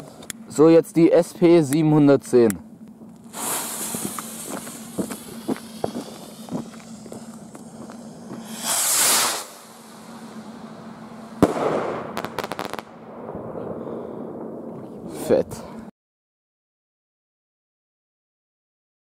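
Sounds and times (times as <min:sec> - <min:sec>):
crackling sparks: 0:03.1 - 0:13.1
firework rocket hissing: 0:03.3 - 0:13.0
firework cracks: 0:03.3 - 0:13.8
firework bang: 0:03.3 - 0:14.7.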